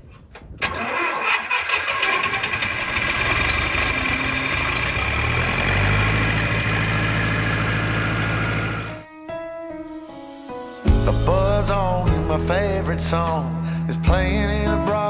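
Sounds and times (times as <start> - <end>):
tractor engine idling: 0.7 - 9.0
music: 8.9 - 15.0.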